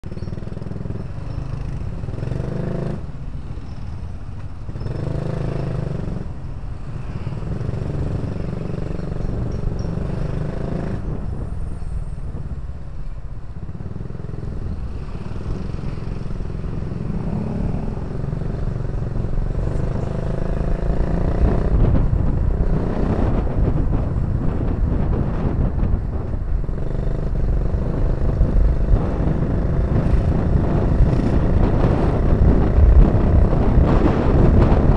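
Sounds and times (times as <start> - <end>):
motorcycle engine revving: 0.1 - 3.9, 4.6 - 6.4, 13.6 - 34.9
wind buffeting on microphone: 4.8 - 34.9.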